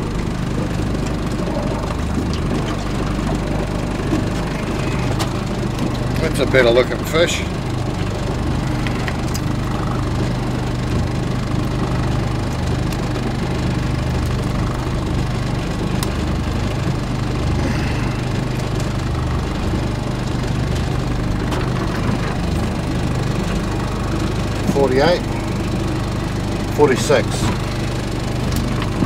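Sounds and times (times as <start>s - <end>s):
outboard motor idling: 0.0s - 29.0s.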